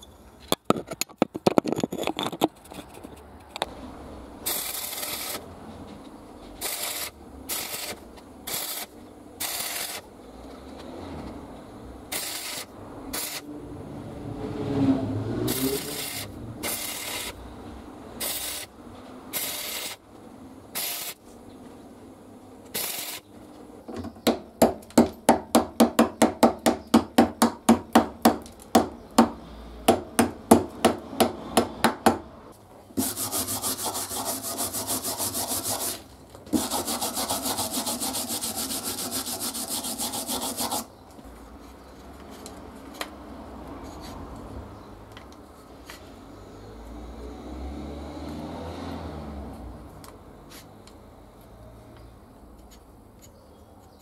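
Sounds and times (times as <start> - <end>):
arc welding crackle: 4.4 - 5.5, 6.6 - 10.1, 12.1 - 13.5, 15.5 - 17.4, 18.2 - 20.0, 20.7 - 21.3, 22.6 - 23.2.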